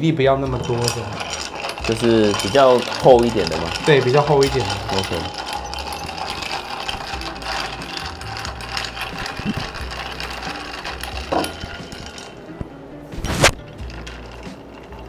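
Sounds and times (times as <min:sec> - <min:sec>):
ice clinking in glass: 0:00.6 - 0:12.4.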